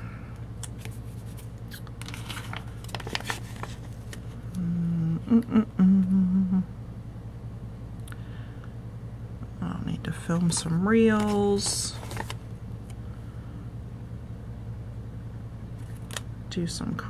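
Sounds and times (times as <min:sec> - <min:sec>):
paper sticker sheet rustling: 0:00.6 - 0:04.4, 0:10.3 - 0:12.4
woman humming: 0:04.5 - 0:06.8.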